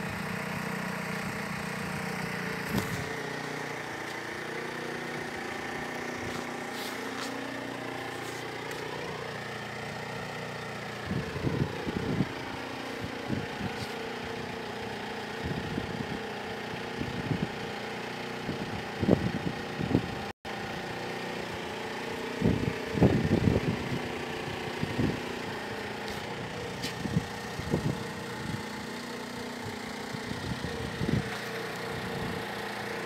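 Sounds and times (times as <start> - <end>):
engine idling: 0.0 - 33.0.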